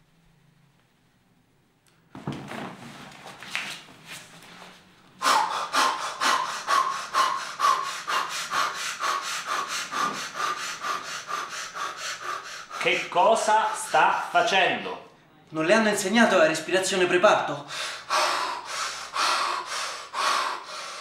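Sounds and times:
man panting rhythmically: 0:05.2 - 0:14.6, 0:17.6 - 0:21.0.

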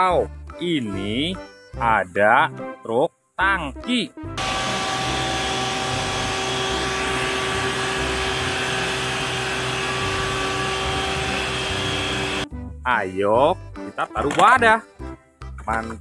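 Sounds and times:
truck engine and pump hum: 0:04.4 - 0:12.4.

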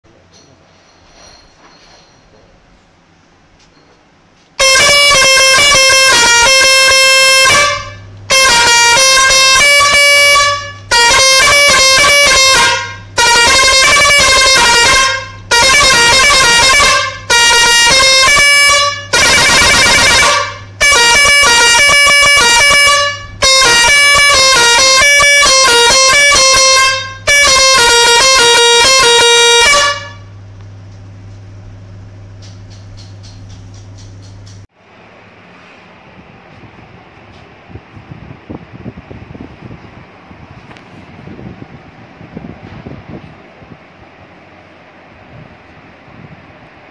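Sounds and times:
low steady hum: 0:00.1 - 0:46.9
air horn playing a tune: 0:04.6 - 0:30.4.

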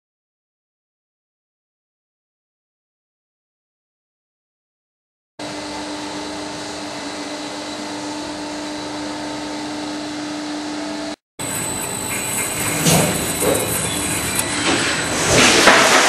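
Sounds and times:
cutting machine hum: 0:05.4 - 0:16.0
machine high whine: 0:05.4 - 0:16.0.

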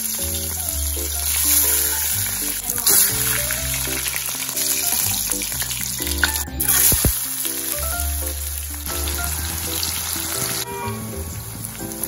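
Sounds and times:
background music: 0:00.0 - 0:12.0
oil sizzling in a wok: 0:00.0 - 0:12.0.

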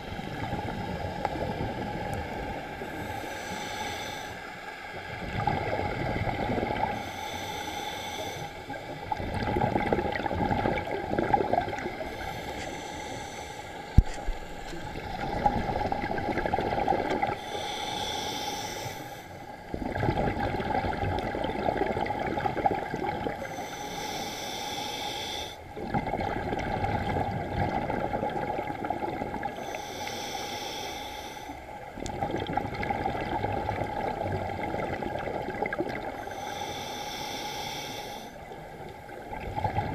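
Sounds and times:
regulator breathing hiss: 0:02.9 - 0:04.6, 0:07.0 - 0:08.8, 0:12.1 - 0:14.8, 0:17.4 - 0:19.5, 0:23.4 - 0:25.7, 0:29.6 - 0:31.6, 0:36.2 - 0:38.4.

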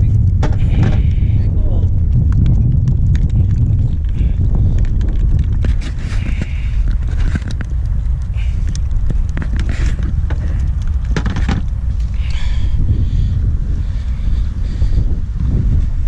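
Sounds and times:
wind buffeting microphone: 0:00.0 - 0:16.0
knocks and rustles: 0:00.3 - 0:01.1, 0:02.4 - 0:07.8, 0:08.6 - 0:12.1.

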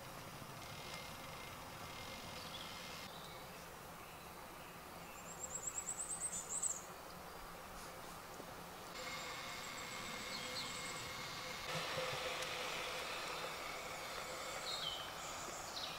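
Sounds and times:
woodland background: 0:00.0 - 0:15.9
songbird rapid high trill: 0:09.0 - 0:15.9.

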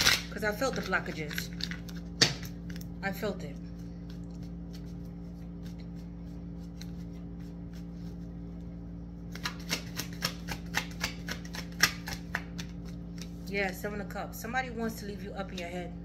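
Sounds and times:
cards being shuffled: 0:00.0 - 0:02.9, 0:03.7 - 0:08.3, 0:09.2 - 0:13.5
steady low hum: 0:00.0 - 0:16.0.

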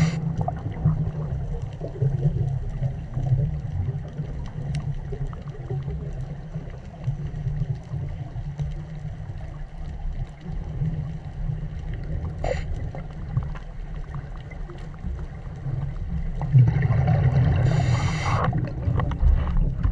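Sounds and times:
rushing hiss with bubbling: 0:00.0 - 0:09.6, 0:10.5 - 0:19.9
low underwater rumble: 0:00.0 - 0:19.9
faint clicks: 0:01.6 - 0:16.0.

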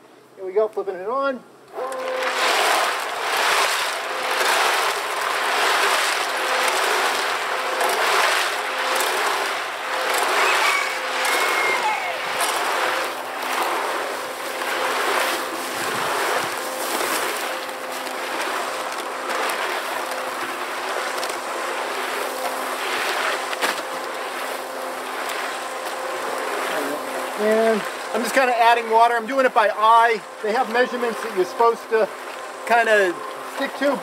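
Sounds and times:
concrete mixer motor hum: 0:01.6 - 0:34.0
wet mix swishing in drum: 0:02.0 - 0:28.4.

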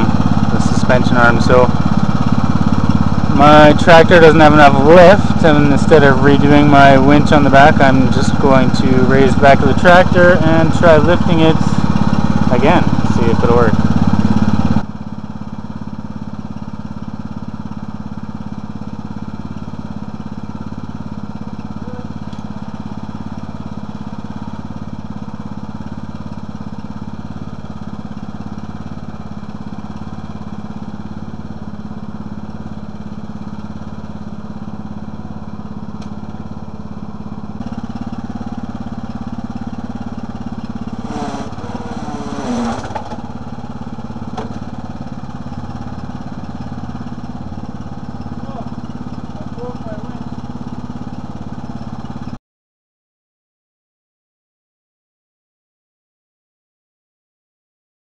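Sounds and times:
lawn tractor engine idling: 0:00.0 - 0:52.4.

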